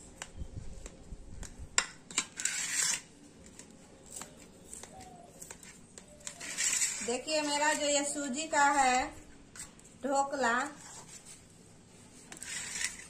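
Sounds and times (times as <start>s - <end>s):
knife scraping plate: 2.1s - 3.1s, 4.1s - 8.2s, 12.2s - 13.0s.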